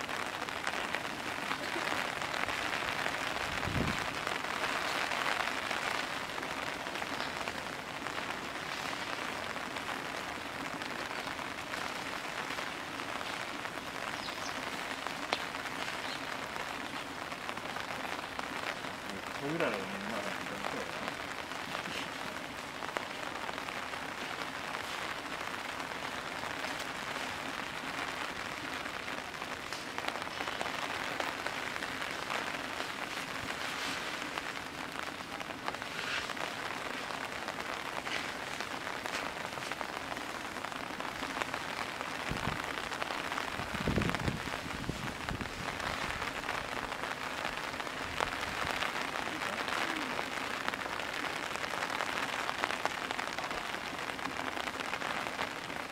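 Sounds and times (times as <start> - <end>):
heavy rain falling: 0.0 - 55.9.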